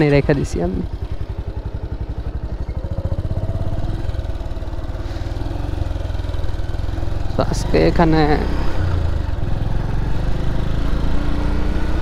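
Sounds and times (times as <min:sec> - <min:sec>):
motorcycle engine putter: 0:00.0 - 0:03.8.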